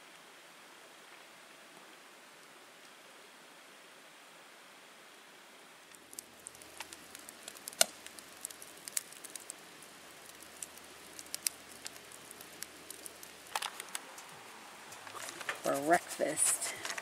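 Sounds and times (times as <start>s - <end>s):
soft steady hiss: 0.0s - 17.0s
campfire crackling and popping: 5.9s - 17.0s.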